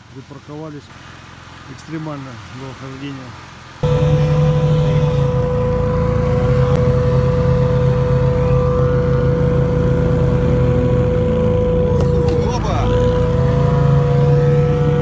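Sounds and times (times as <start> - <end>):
hovercraft engines droning: 3.6 - 15.0.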